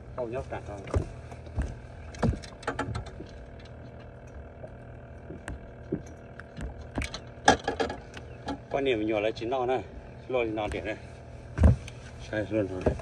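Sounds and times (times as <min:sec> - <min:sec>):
faint steady hum: 0:00.0 - 0:13.0
fish knocking on boat deck: 0:04.6 - 0:08.7.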